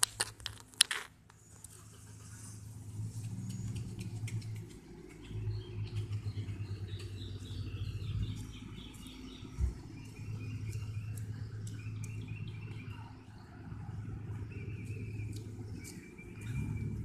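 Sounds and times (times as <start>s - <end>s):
steady low hum: 1.2s - 17.0s
small birds chirping: 1.4s - 17.0s.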